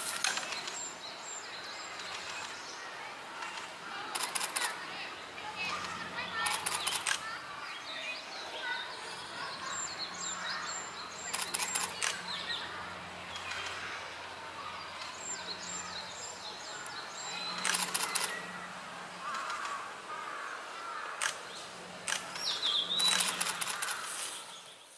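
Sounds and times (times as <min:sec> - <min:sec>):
camera shutter clicks: 0:06.4 - 0:07.2, 0:11.3 - 0:12.2, 0:17.6 - 0:18.4, 0:21.2 - 0:21.4, 0:22.0 - 0:24.1.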